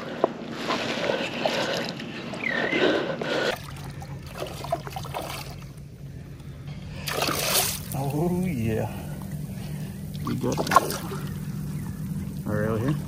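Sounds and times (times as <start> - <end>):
water splashing and trickling: 3.5 - 5.9, 6.9 - 13.0.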